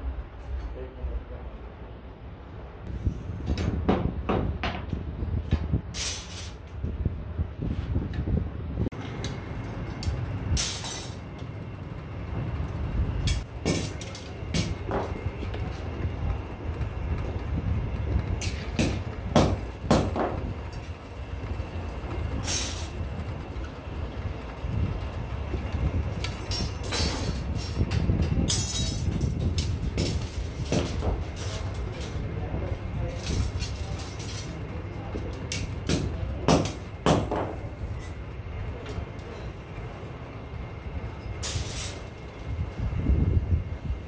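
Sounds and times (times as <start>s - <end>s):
iron strips clanking on metal table: 10.6s - 11.2s, 22.4s - 23.0s, 26.2s - 32.2s, 41.4s - 42.0s.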